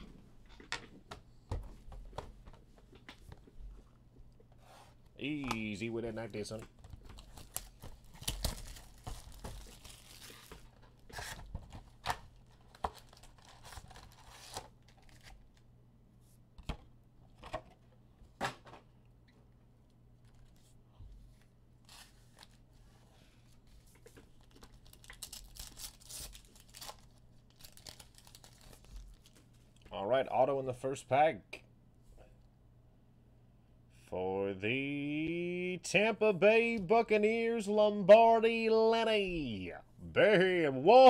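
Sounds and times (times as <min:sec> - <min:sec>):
foil wrappers crinkling: 0:06.3 - 0:15.6, 0:24.1 - 0:29.8
foil pack tearing open: 0:07.2 - 0:11.4, 0:12.5 - 0:15.5, 0:24.4 - 0:29.4.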